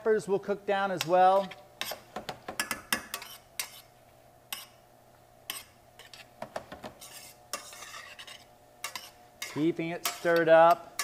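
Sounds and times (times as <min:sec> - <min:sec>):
utensil scraping metal pan: 0:03.1 - 0:03.9, 0:07.0 - 0:11.0.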